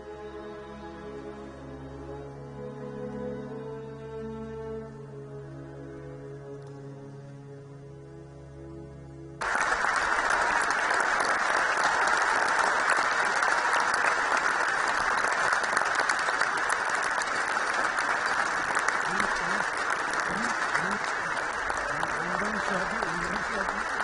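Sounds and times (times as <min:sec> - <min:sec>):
audience applause: 0:09.4 - 0:24.0.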